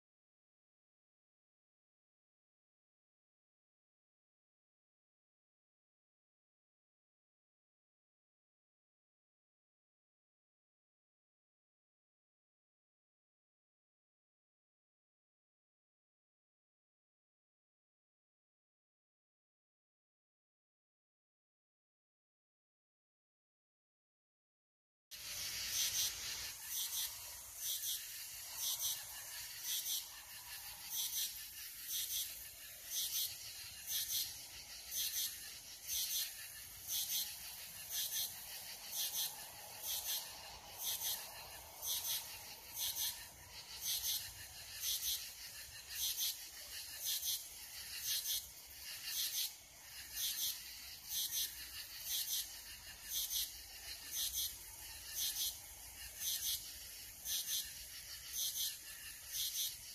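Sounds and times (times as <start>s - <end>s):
insects chirping: 25.2s - 59.9s.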